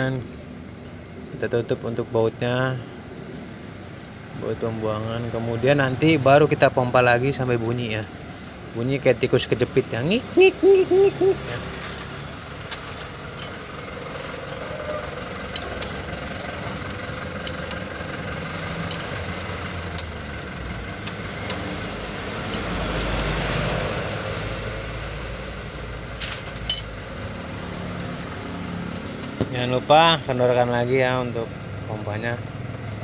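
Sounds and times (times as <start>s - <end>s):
steady mechanical hum: 0.0s - 33.0s
metallic spanner clicks: 15.5s - 16.1s, 16.9s - 18.0s, 18.7s - 21.7s, 22.4s - 23.9s, 26.7s - 27.0s.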